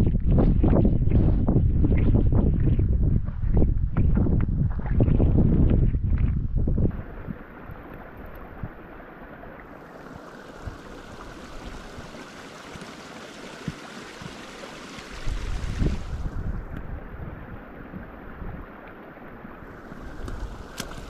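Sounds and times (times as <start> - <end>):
wind: 0.0 - 21.0
running water: 6.7 - 21.0.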